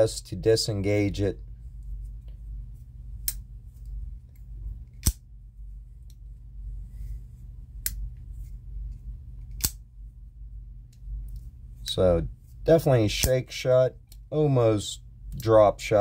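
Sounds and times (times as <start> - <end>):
folding knife metallic clicks: 5.0 - 5.2, 9.5 - 9.8.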